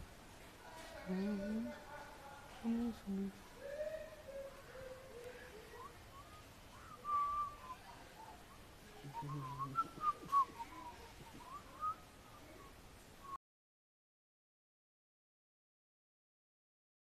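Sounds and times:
person whistling a tune: 0:05.7 - 0:07.8, 0:09.1 - 0:12.0.

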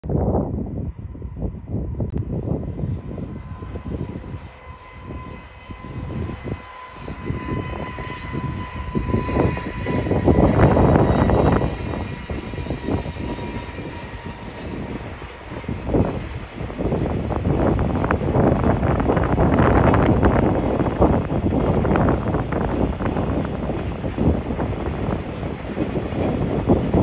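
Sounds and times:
freight train rumbling past: 0:00.2 - 0:27.0.

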